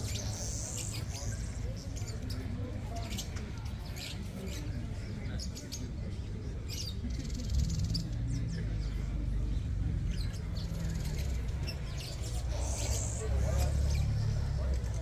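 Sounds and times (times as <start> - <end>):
small birds chirping: 0.0 - 15.0
buzzy bird trill: 10.6 - 14.2.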